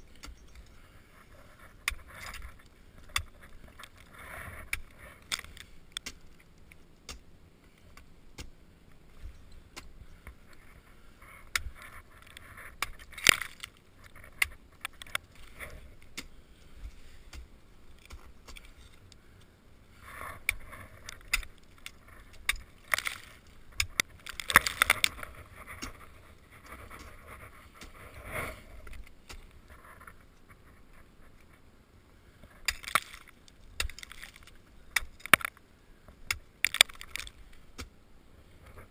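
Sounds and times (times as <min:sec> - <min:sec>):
ice tools striking ice: 0:32.6 - 0:35.5.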